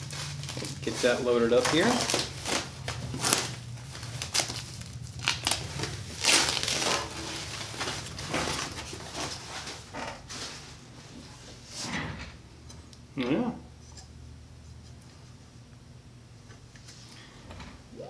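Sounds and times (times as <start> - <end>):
packaging crinkling and rustling: 0.0 - 10.8.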